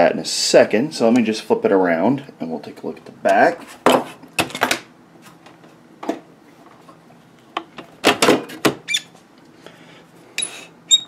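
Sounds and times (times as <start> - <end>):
metal squeaking: 10.4 - 11.0.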